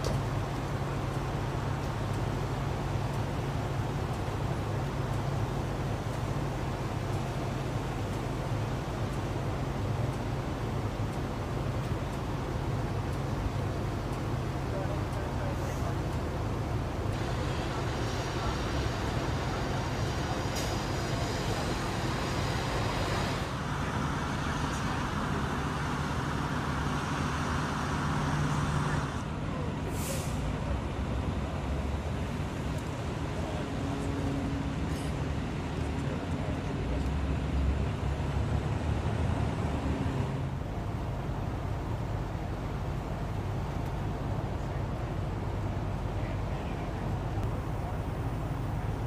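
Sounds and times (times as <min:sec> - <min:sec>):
fire truck engines idling: 0:00.0 - 0:49.0
road noise: 0:00.0 - 0:49.0
brief hiss: 0:29.8 - 0:30.5.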